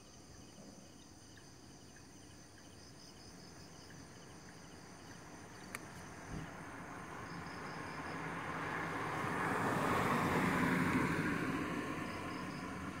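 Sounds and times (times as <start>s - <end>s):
car driving past: 6.1s - 13.0s.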